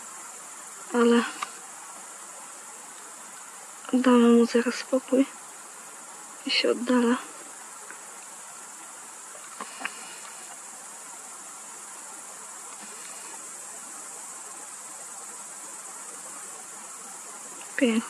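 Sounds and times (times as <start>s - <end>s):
high-pitched insect chorus: 0.0s - 18.0s
faint clicks: 1.2s - 1.6s, 2.9s - 4.0s, 7.6s - 8.3s, 9.3s - 10.6s.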